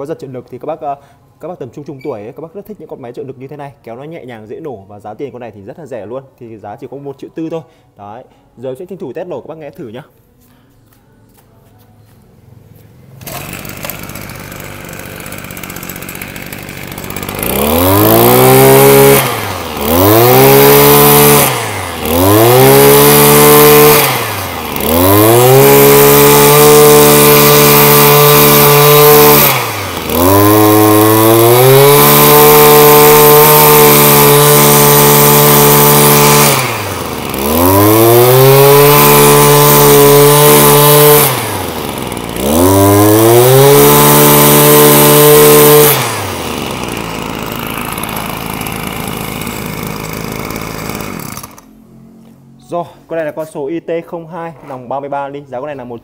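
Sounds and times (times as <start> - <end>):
brush cutter engine revving: 13.0 - 52.3.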